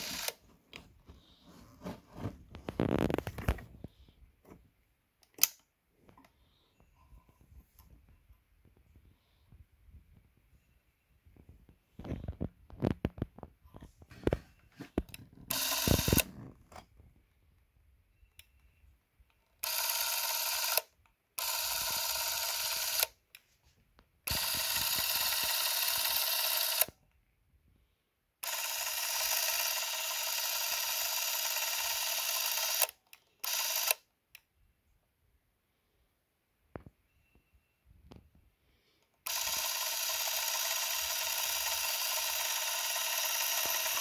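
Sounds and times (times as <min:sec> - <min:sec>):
camera motor whirring: 0:00.0 - 0:00.4, 0:15.5 - 0:16.4, 0:19.6 - 0:23.2, 0:24.3 - 0:26.9, 0:28.4 - 0:34.0, 0:39.2 - 0:44.0.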